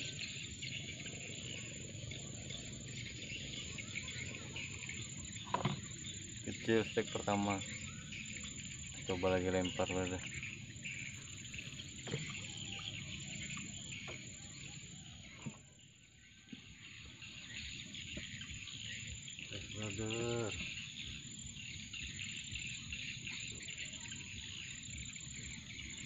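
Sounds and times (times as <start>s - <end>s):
insects chirping: 0.0s - 26.0s.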